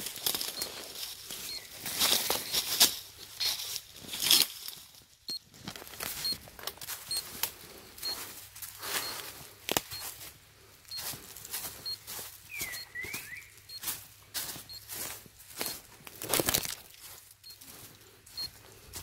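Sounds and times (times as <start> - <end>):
footsteps crunching dry leaves: 0.0 - 19.0
short high beep: 12.6 - 14.0.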